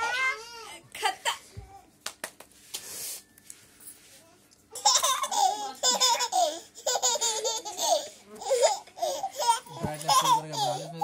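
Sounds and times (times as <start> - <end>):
toddler laughing: 4.8 - 11.0.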